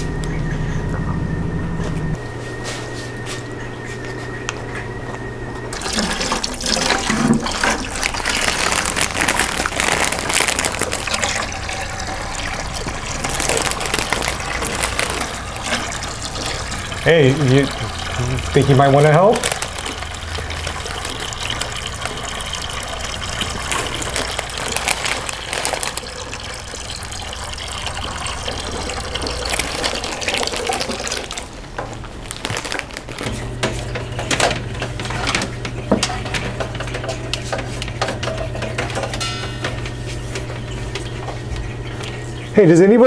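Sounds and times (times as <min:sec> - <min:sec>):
steady low hum: 0:00.0 - 0:43.0
water running and splashing: 0:05.7 - 0:33.3.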